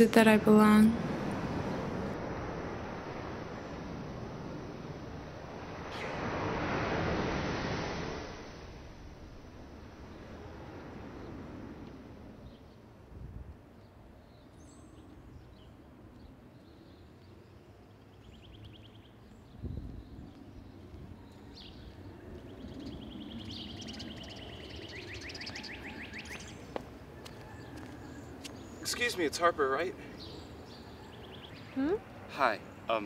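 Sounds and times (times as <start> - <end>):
birds singing: 13.8 - 33.0.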